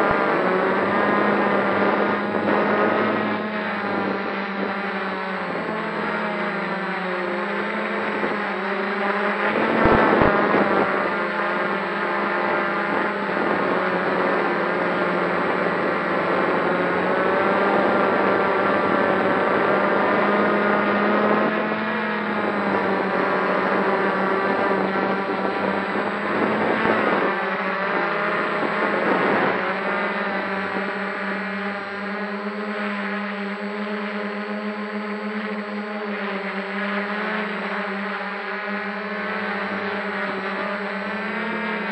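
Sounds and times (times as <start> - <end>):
drone propellers humming: 0.0 - 41.9.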